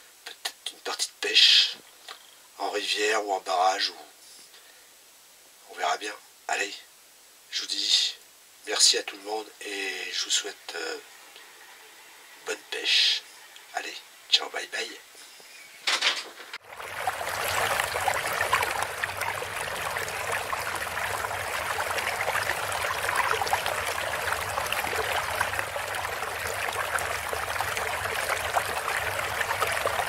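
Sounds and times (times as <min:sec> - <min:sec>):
water-like rushing noise: 0:16.6 - 0:30.0.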